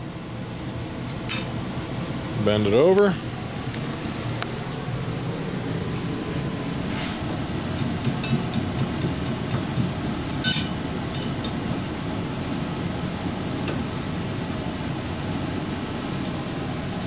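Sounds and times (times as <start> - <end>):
pliers clinking on metal: 10.3 - 11.3.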